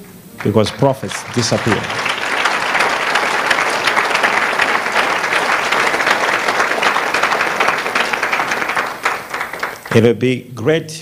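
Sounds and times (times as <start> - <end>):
congregation applauding: 0.0 - 10.2.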